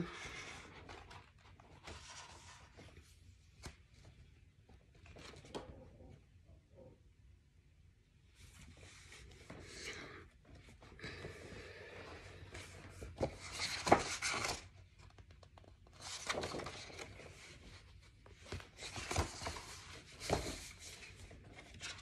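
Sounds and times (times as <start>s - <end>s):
book pages rustling: 0.3s - 5.7s, 12.2s - 22.0s.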